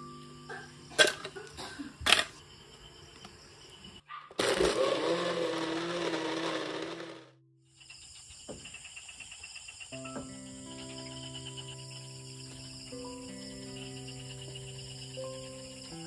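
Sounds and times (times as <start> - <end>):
crickets chirring: 0.0 - 4.2, 7.6 - 16.0
blender blending ice: 4.4 - 7.4.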